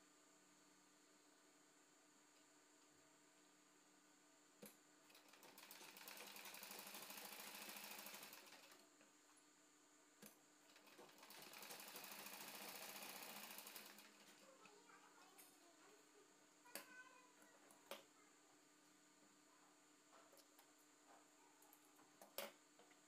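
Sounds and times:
sewing machine stitching: 5.1 - 8.8, 10.7 - 14.7.

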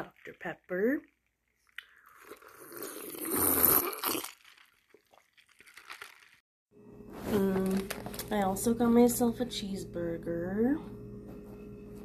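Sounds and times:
slurping sip from cup: 1.8 - 6.4.

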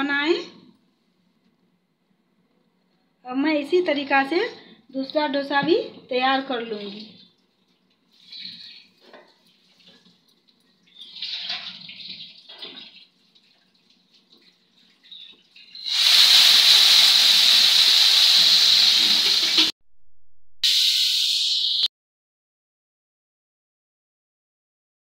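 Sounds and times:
water sizzling on hot griddle: 14.2 - 19.8, 20.6 - 21.9.

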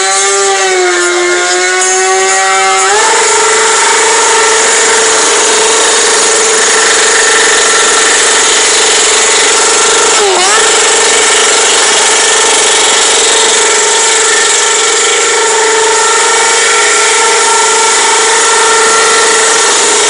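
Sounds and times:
motorcycle engine at high revs: 0.0 - 20.0.

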